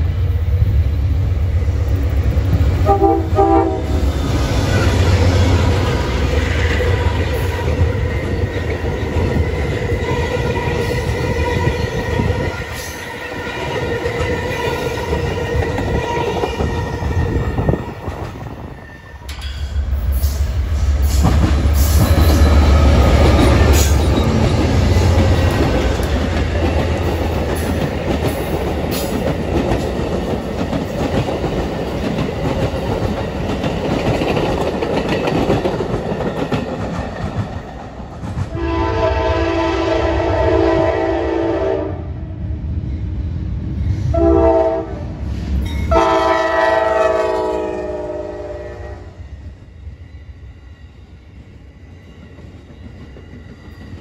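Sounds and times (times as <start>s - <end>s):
train cars rolling past: 0.0s - 41.7s
diesel locomotive engine rumble: 0.0s - 54.0s.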